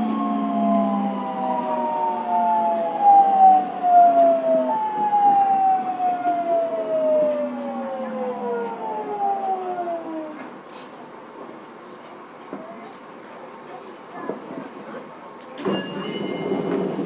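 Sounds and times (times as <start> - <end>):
train motors whining: 0.0 - 10.7.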